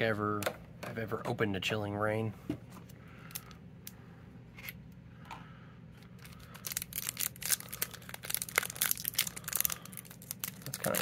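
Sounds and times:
foil wrapper crinkling and tearing: 6.2 - 11.0.

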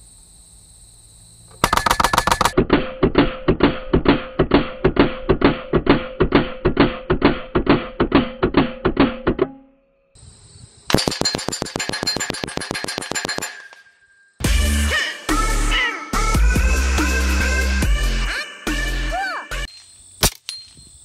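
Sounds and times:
air rifle automatic burst: 1.6 - 3.0, 10.9 - 13.6
pellets hitting steel target: 10.9 - 14.4
electronic music with fast beat: 14.4 - 19.7.

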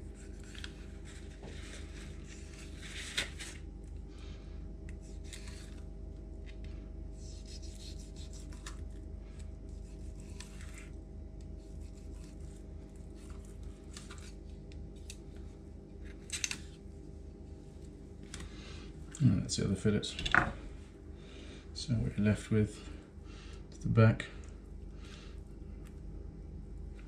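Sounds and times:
low hum: 0.0 - 27.0
knife scraping along fish bones: 7.2 - 8.8, 9.7 - 10.9, 11.6 - 14.1.

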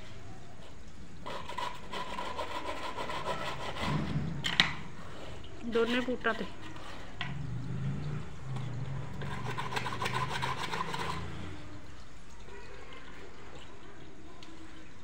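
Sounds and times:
low steady hum: 3.9 - 12.6
applicator scrubbing leather shoe: 9.2 - 11.3.

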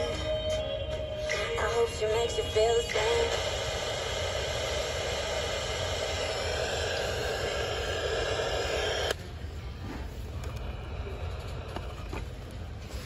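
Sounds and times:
radio static hiss: 1.3 - 9.2.

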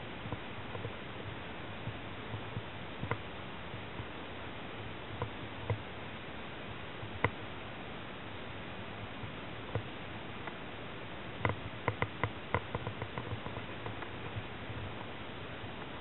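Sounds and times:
small clicks and knocks: 2.6 - 3.3, 11.4 - 15.1.

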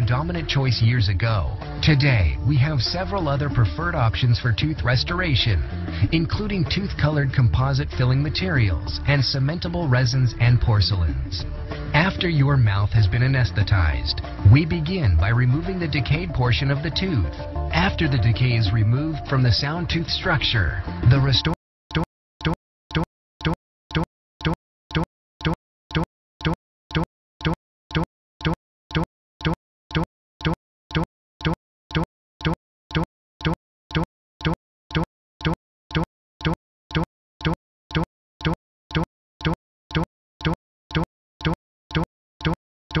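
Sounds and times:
short repeating pops: 21.4 - 43.0.

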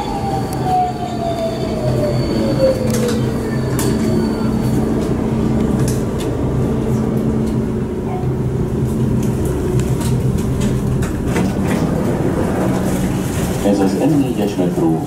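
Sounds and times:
train electric hum: 0.0 - 15.0
passengers clicks and rustles: 8.9 - 14.6.

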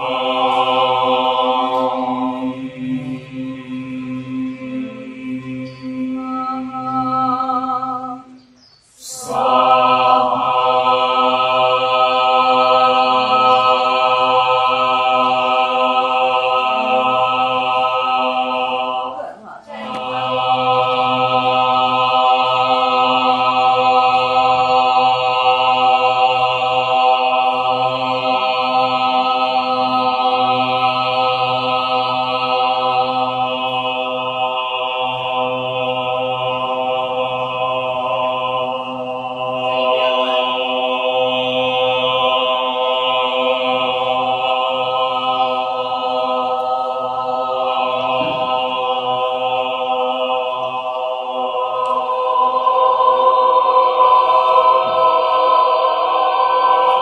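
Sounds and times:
choir singing a cappella: 0.0 - 57.0.

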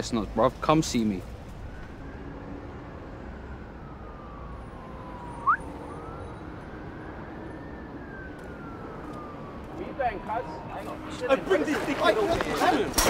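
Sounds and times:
low rumble of traffic: 0.0 - 13.0
distant siren wailing: 0.8 - 12.9.

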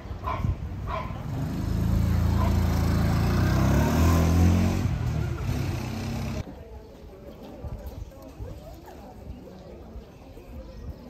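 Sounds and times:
vehicle engine passing by: 1.1 - 6.4.

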